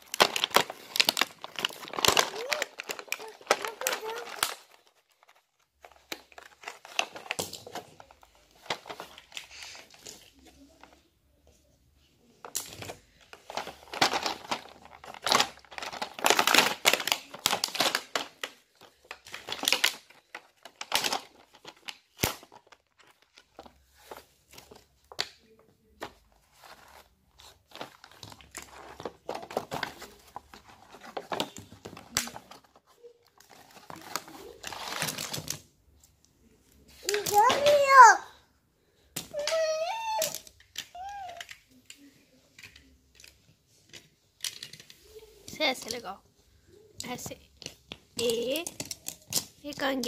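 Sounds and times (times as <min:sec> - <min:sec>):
plastic packaging crinkling: 0:00.0 - 0:10.8, 0:12.5 - 0:25.3, 0:26.1 - 0:35.7.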